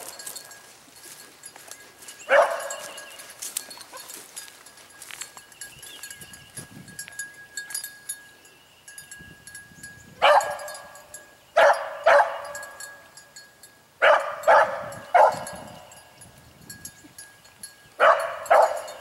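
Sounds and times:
hound baying: 2.2s - 4.3s, 10.2s - 11.0s, 11.6s - 12.8s, 14.0s - 15.7s, 18.0s - 19.0s.

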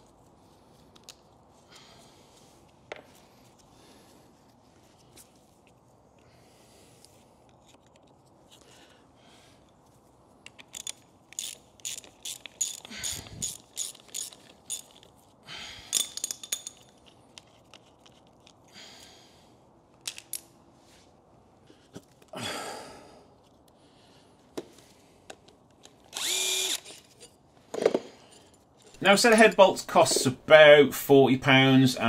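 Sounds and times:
metal parts scraping and clunking: 10.4s - 15.3s, 15.9s - 18.7s, 26.8s - 30.3s
ratchet wrench clicking: 10.5s - 15.1s, 26.1s - 27.0s.

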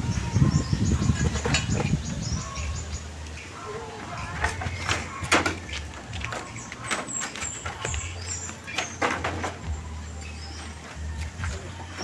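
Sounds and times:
bamboo poles knocking: 4.4s - 9.7s.

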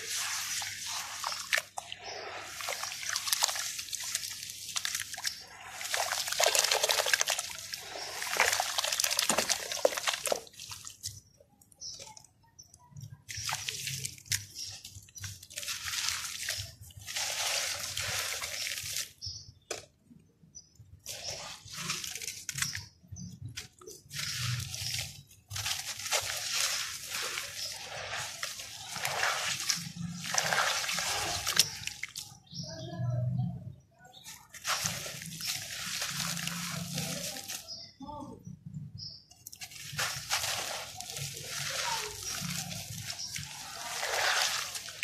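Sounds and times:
dried dirt pot crumbling: 0.0s - 12.2s, 21.0s - 32.6s, 34.3s - 38.0s, 39.4s - 45.0s
water splashing and dripping: 0.0s - 32.7s, 33.6s - 37.9s, 38.7s - 45.0s
hands squeezing wet dirt in water: 0.0s - 38.0s, 38.7s - 45.0s.

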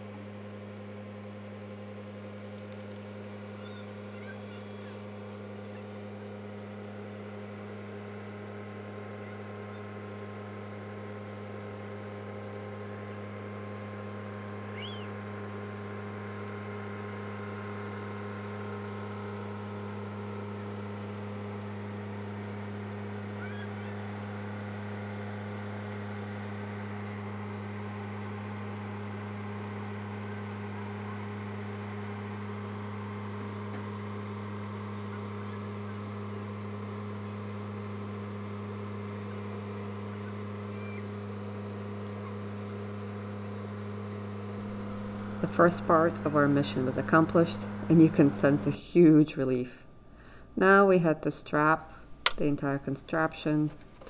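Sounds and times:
tractor engine running: 33.3s - 48.8s.

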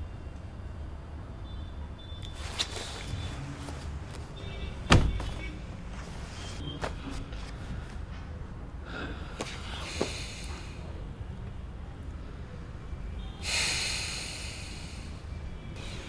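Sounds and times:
rustling: 2.3s - 8.0s
heavy thud: 4.8s - 5.5s.

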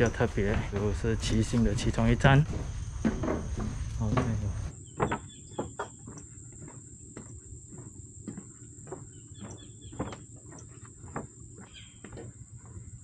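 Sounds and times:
footsteps on wooden boardwalk: 0.0s - 13.0s.

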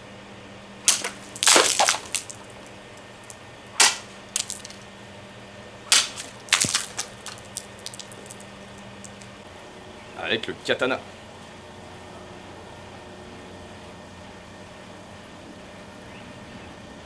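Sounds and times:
sabre slicing plastic bottle: 0.9s - 2.4s, 3.8s - 4.8s, 5.9s - 8.2s.

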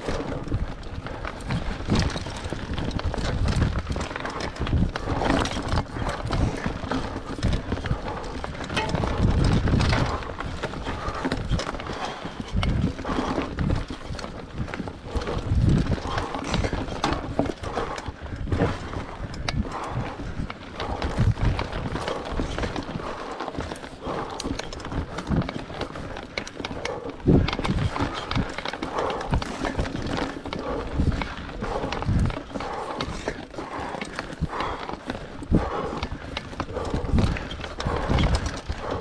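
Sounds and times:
bike tyres on rough dirt trail: 0.0s - 39.0s
bike frame clattering: 8.4s - 10.3s.

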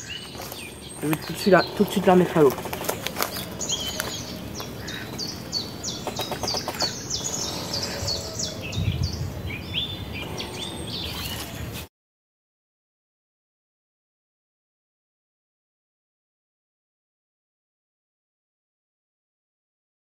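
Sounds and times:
birds chirping: 0.0s - 11.9s.

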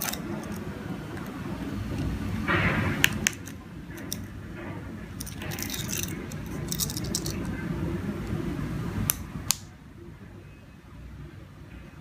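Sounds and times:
plastic remote rustling and clattering: 5.2s - 7.5s.

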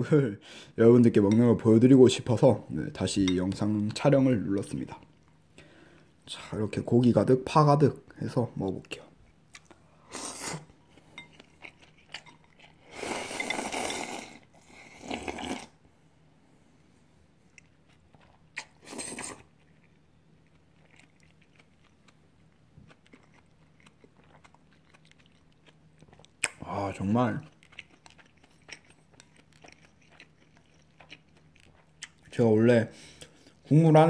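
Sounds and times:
faint chewing: 8.8s - 15.8s, 17.4s - 32.4s
person slurping noodles: 10.1s - 10.7s, 12.8s - 15.8s, 18.6s - 19.5s.

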